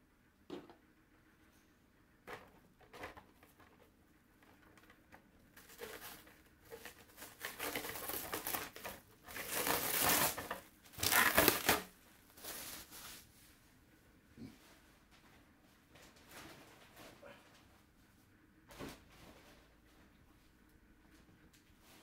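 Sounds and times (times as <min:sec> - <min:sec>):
packaging crinkling and rustling: 0:05.6 - 0:13.2.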